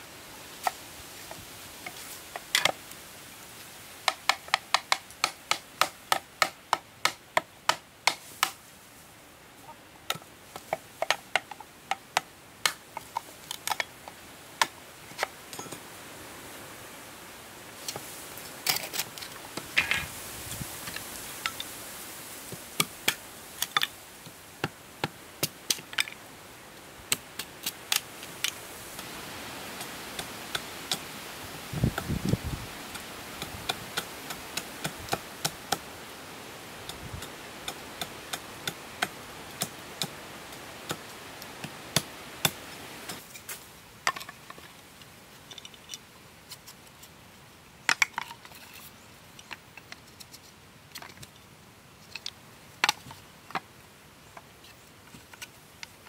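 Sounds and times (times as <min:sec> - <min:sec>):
machete chopping bamboo: 0:04.1 - 0:08.6.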